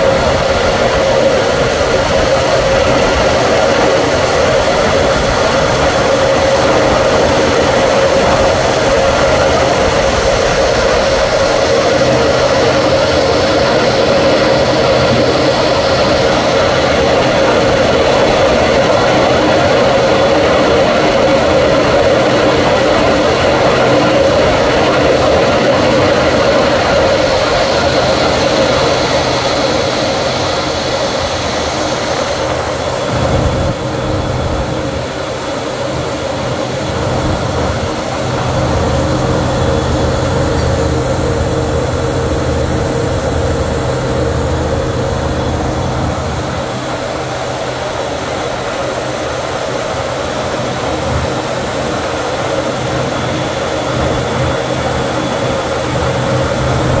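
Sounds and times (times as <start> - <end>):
constant low hum: 0.0 - 57.0
turbofan engines running: 0.0 - 57.0
rush of air: 31.2 - 35.4.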